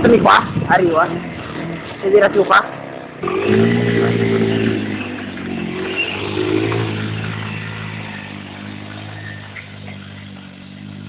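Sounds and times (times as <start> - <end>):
quad engine running: 3.2 - 11.0.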